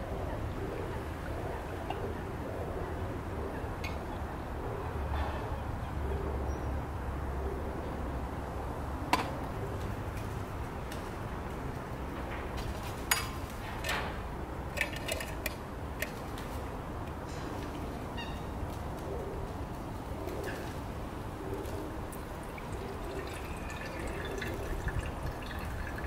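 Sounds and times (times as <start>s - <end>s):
water pouring into metal tin: 14.8s - 15.5s, 22.2s - 26.0s.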